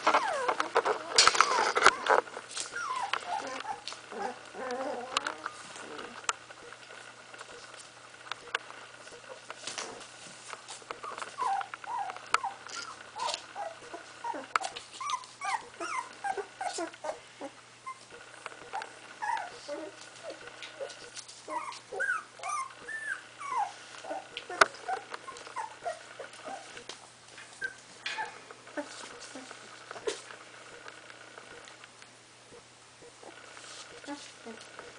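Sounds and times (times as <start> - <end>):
puppies whimpering and squeaking: 0.0 - 6.8, 10.9 - 30.3, 33.0 - 34.9.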